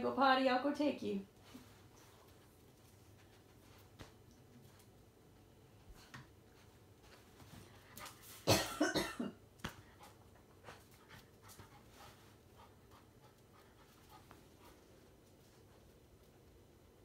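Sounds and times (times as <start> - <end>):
person coughing: 8.5 - 9.4.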